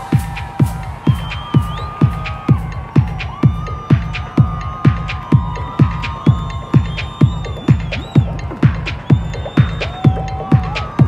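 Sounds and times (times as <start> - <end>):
deep kick drum: 0.0 - 11.0
techno music: 0.0 - 11.0.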